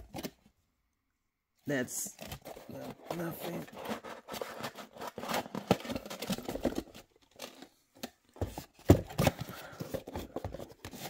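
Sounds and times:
cardboard rustling and scraping: 0:02.1 - 0:07.8, 0:08.4 - 0:11.0.

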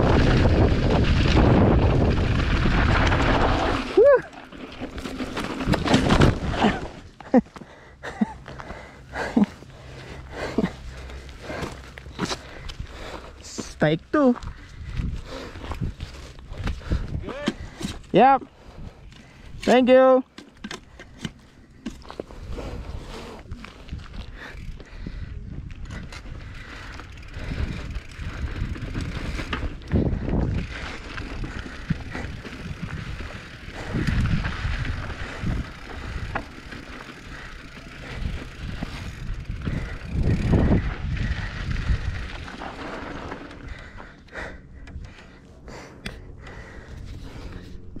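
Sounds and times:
wind rumble on microphone: 0:00.0 - 0:04.2, 0:14.4 - 0:18.0, 0:22.2 - 0:44.1
bike tyre and rattle noise: 0:00.0 - 0:48.0.

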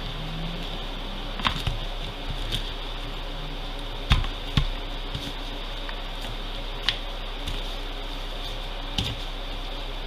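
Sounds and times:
background fan hum: 0:00.0 - 0:10.0.

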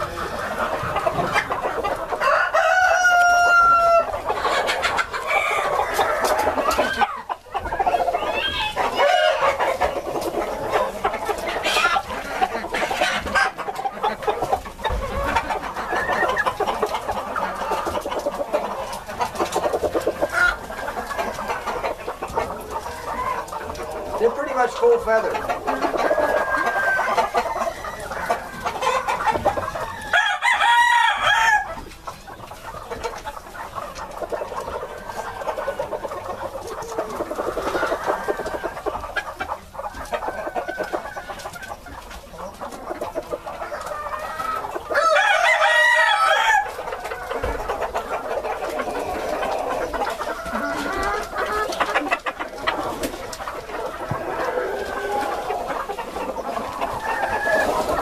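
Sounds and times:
chickens clucking and chattering: 0:00.0 - 0:58.0
rooster crowing: 0:02.2 - 0:04.1, 0:26.1 - 0:28.1, 0:29.9 - 0:31.8, 0:44.9 - 0:46.7, 0:50.3 - 0:51.0.

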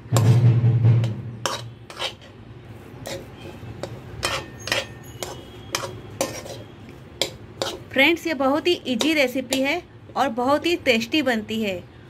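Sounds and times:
metal spoon scraping pan: 0:01.0 - 0:09.8.

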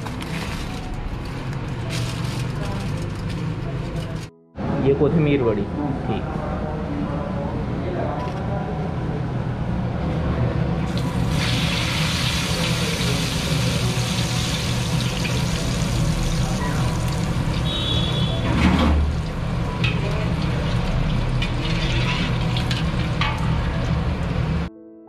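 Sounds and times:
food sizzling in hot oil: 0:10.9 - 0:18.4, 0:19.1 - 0:23.6.

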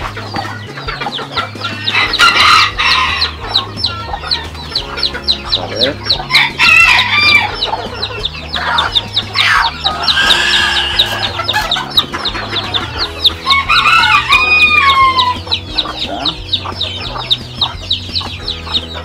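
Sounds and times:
chicks peeping: 0:00.0 - 0:19.0
rooster crowing: 0:01.8 - 0:03.4, 0:06.3 - 0:07.7, 0:09.4 - 0:12.0, 0:13.0 - 0:15.5.

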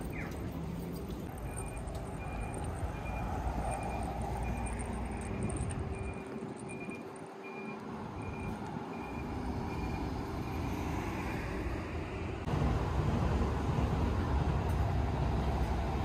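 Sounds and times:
rumble of passing vehicles: 0:00.0 - 0:16.0
high electronic beep: 0:01.3 - 0:10.1.

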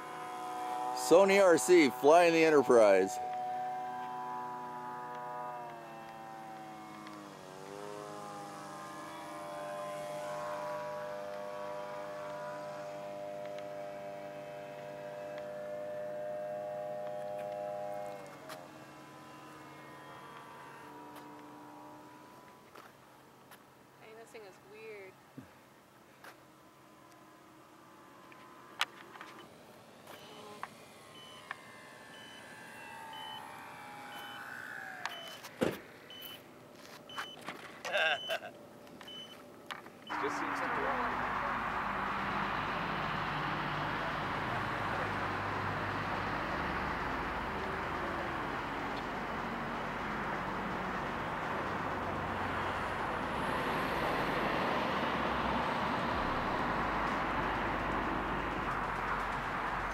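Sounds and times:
model aircraft motor whine: 0:00.0 - 0:25.1, 0:25.9 - 0:37.6, 0:39.0 - 0:59.9
short high beeps: 0:35.1 - 0:35.4, 0:36.1 - 0:36.4, 0:37.1 - 0:37.4, 0:39.0 - 0:39.4.

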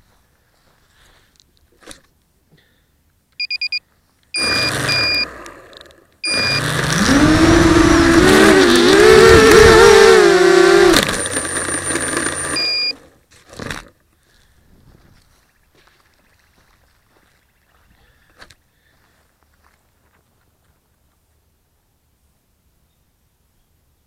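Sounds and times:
short electronic beeps: 0:03.4 - 0:03.8, 0:04.4 - 0:05.4, 0:06.2 - 0:06.7, 0:11.3 - 0:13.0
quadcopter motors spinning: 0:04.4 - 0:13.2.

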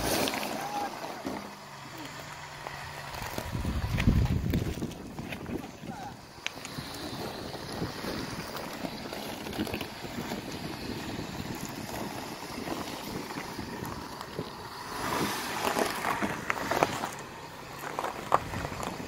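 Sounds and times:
car driving on stony dirt road: 0:00.0 - 0:19.0
wind on microphone: 0:03.3 - 0:08.7.

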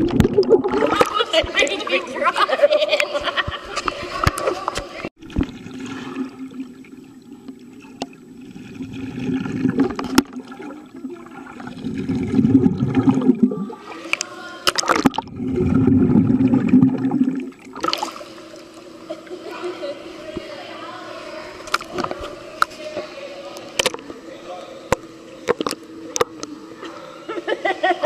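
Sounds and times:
muffled underwater rushing and gurgling: 0:04.2 - 0:14.2, 0:14.8 - 0:19.2.

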